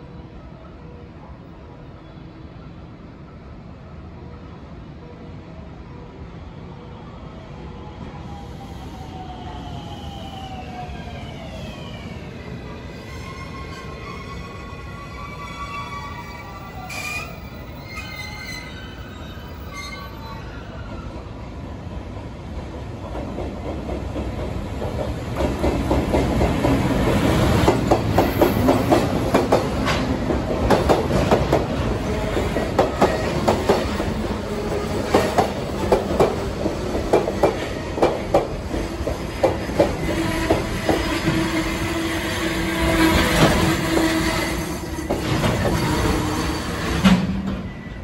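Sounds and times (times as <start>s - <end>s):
train brakes squealing: 8.2s - 21.4s, 40.1s - 48.0s
train wheels clacking: 23.0s - 41.8s.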